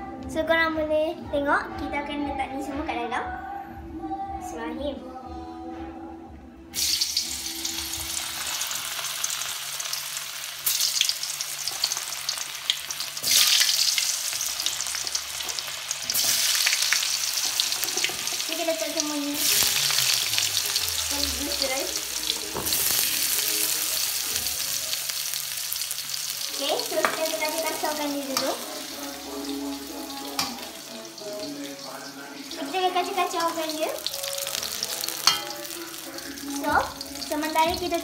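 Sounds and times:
sausages sizzling in oil: 6.8 - 38.0
metal spatula stirring: 15.0 - 18.6, 27.0 - 37.2.

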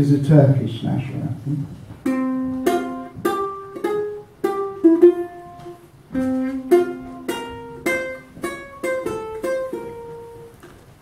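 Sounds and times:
ukulele plucked notes: 2.0 - 10.8.

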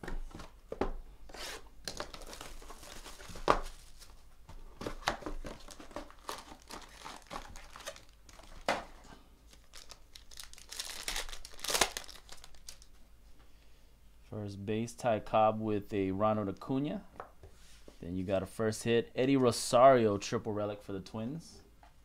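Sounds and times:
cards and box handled: 0.1 - 12.8
foil pack crinkling: 1.8 - 4.2, 4.8 - 8.9, 9.5 - 12.9
shrink-wrap tearing: 5.5 - 8.7, 9.5 - 12.9.

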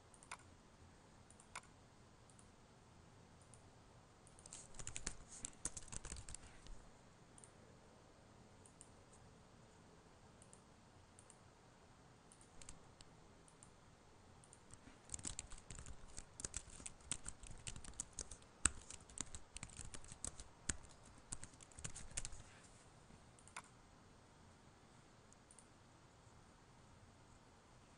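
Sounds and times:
typing on computer keyboard: 4.3 - 6.8, 12.3 - 12.8, 14.4 - 22.5.

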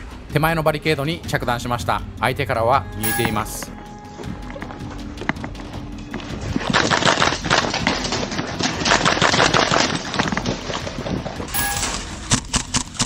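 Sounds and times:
pellets hitting wooden barricades: 6.7 - 13.0.

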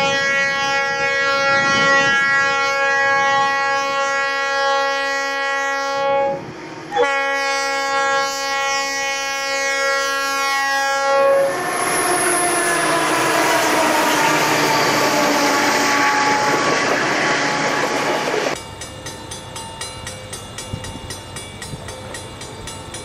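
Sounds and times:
locomotive horn chord: 0.0 - 18.4
train passing close by: 0.0 - 23.0.

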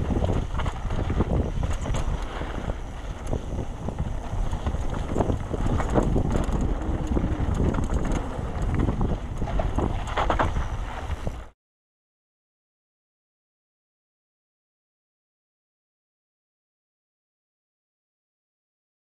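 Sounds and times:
mountain bike rattling over trail: 0.0 - 11.5
steady low rumble: 0.0 - 11.5
wind buffeting microphone: 0.0 - 11.5.

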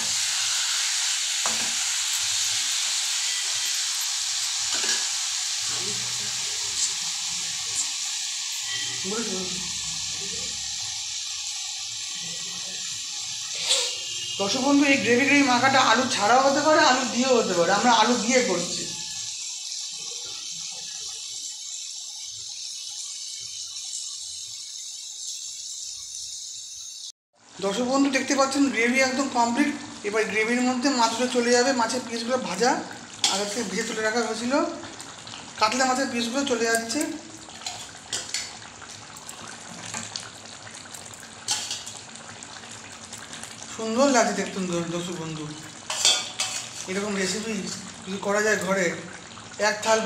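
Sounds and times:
gravy sizzling in a pan: 0.0 - 50.0
gravy simmering and bubbling: 18.9 - 26.2, 36.9 - 49.6
spatula scraping pan: 37.5 - 38.6, 45.9 - 47.0.

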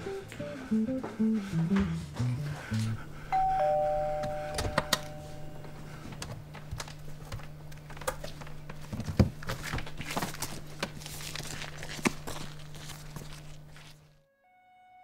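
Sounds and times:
steady low hum: 0.0 - 14.0
two-tone door chime: 3.3 - 5.9.

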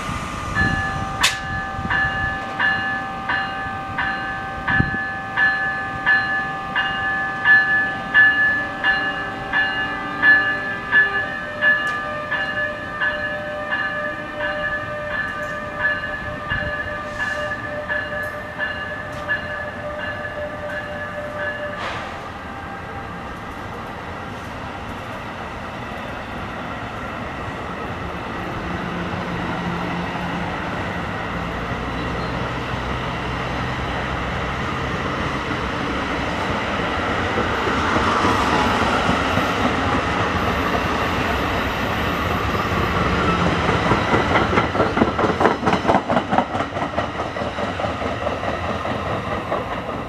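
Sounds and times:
locomotive bell ringing: 0.6 - 22.0.

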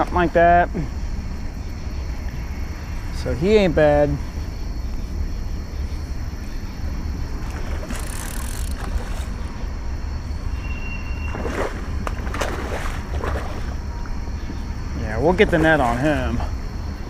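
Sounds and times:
low wind rumble on microphone: 0.0 - 17.0
fish splashing at water surface: 11.3 - 13.8.

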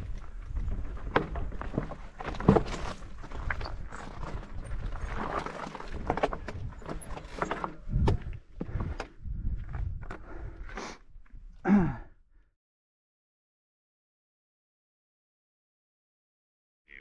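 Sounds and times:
bike knocking on stony track: 0.0 - 9.2.

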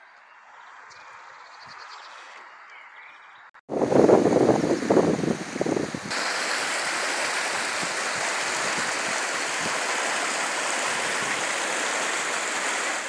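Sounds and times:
wind rumble on microphone: 3.7 - 6.3
river rushing over stones: 4.6 - 13.0.

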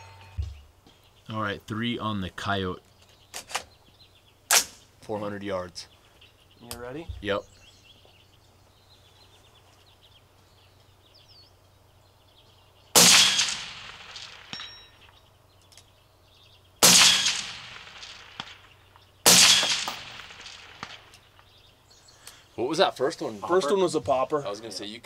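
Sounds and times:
rifle shots: 13.0 - 15.1, 16.8 - 21.4.

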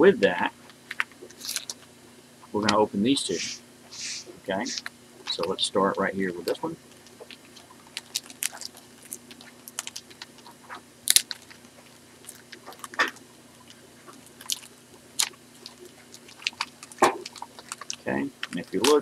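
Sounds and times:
foil wrapper crinkling and tearing: 0.7 - 1.9, 6.4 - 19.0.

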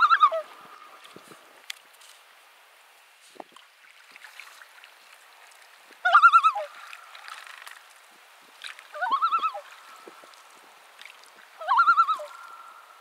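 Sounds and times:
bird warbling call: 9.0 - 9.8, 11.6 - 13.0.

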